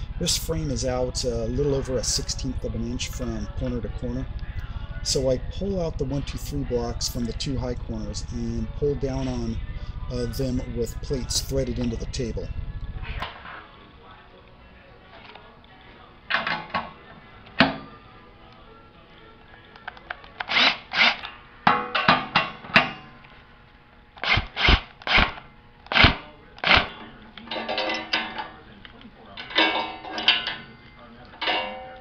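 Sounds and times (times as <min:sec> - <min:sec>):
sharp metal clunks: 0:21.7 - 0:23.0, 0:31.4 - 0:32.0
cordless drill bursts: 0:24.2 - 0:26.9.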